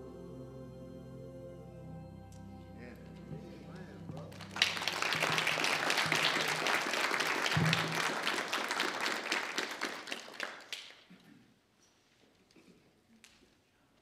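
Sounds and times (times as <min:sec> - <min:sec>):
low held music notes: 0:00.0 - 0:05.8
congregation applauding: 0:03.6 - 0:11.2.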